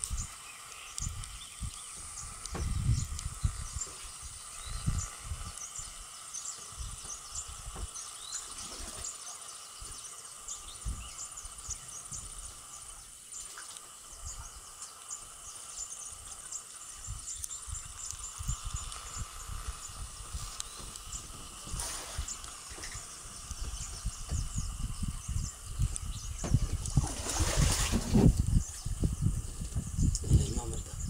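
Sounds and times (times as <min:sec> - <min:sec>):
birds chirping: 0:00.0 - 0:31.0
steady high hum: 0:00.0 - 0:31.0
wind gusts on microphone: 0:01.0 - 0:06.0, 0:16.9 - 0:31.0.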